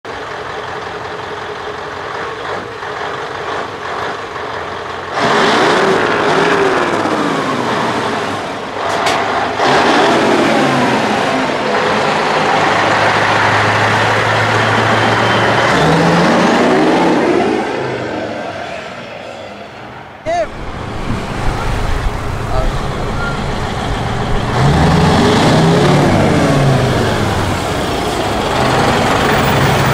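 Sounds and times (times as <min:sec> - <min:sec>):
truck engines revving: 0:00.1 - 0:29.9.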